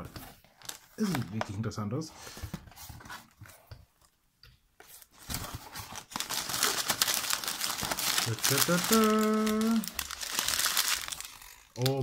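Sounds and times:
packing paper rustling: 4.9s - 12.0s.

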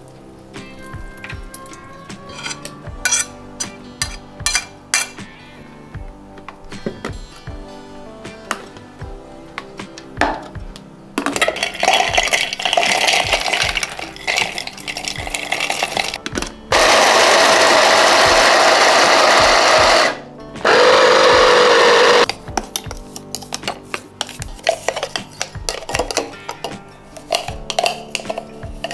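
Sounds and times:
spoon scraping chopper bowl: 2.2s - 5.2s, 21.5s - 28.9s
mini chopper motor grinding nuts: 16.7s - 22.3s.

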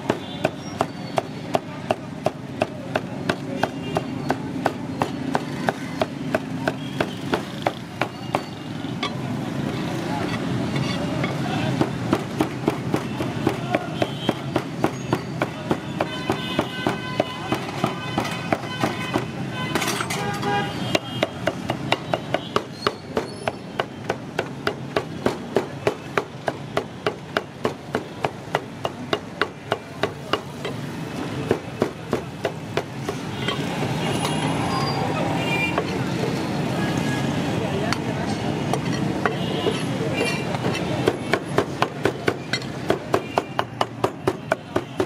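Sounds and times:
meat cleaver chopping on wood: 0.0s - 8.5s, 11.7s - 19.4s, 20.9s - 33.3s, 40.5s - 45.0s
street noise: 0.0s - 45.0s.

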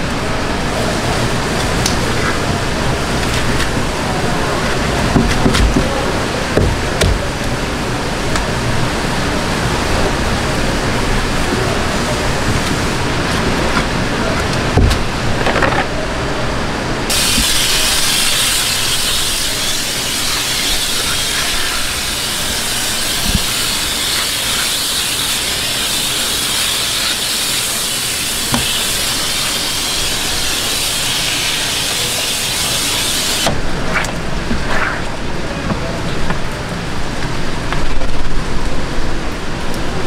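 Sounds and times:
knocks and handling sounds: 12.5s - 16.0s
water hose spraying: 17.1s - 35.4s.

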